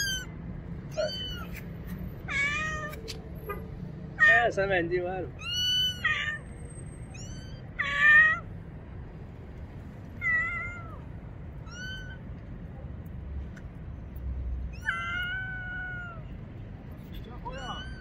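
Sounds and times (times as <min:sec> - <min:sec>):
kitten meowing: 0:00.0 - 0:00.3, 0:00.9 - 0:01.6, 0:02.2 - 0:03.1, 0:05.4 - 0:06.4, 0:07.1 - 0:08.4, 0:10.2 - 0:11.0, 0:11.6 - 0:12.2, 0:14.7 - 0:16.3, 0:17.4 - 0:18.0.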